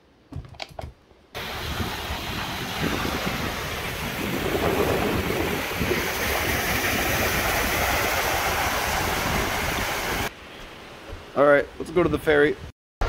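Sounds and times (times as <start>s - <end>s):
waves breaking on stony shore: 1.4s - 10.3s
wind buffeting microphone: 1.4s - 10.3s.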